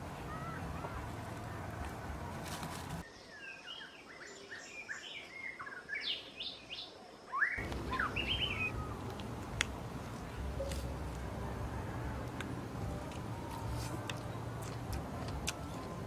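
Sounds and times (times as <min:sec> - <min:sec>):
small birds chirping: 0:00.2 - 0:12.5.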